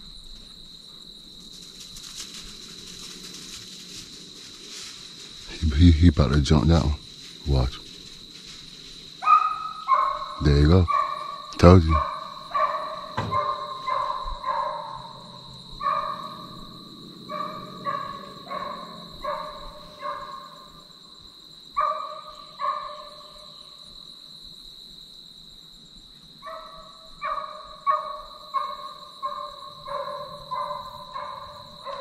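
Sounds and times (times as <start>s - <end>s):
hounds barking: 9.2s - 20.9s, 21.7s - 23.5s, 26.4s - 32.0s.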